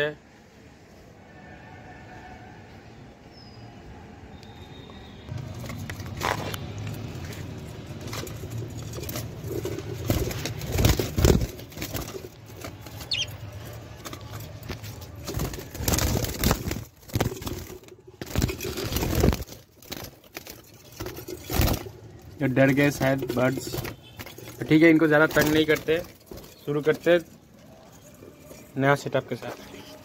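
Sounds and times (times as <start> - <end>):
bird chirp: 3.3 - 5.3, 12.8 - 13.8
birds flapping wings in cage: 5.3 - 28.8.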